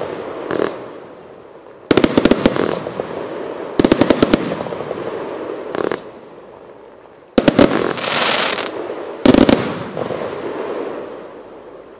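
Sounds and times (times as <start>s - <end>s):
firework hiss: 7.4s - 11.2s.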